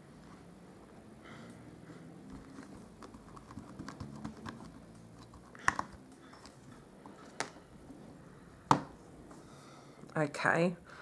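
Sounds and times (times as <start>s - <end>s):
stamps tapping on paper: 3.0s - 6.0s.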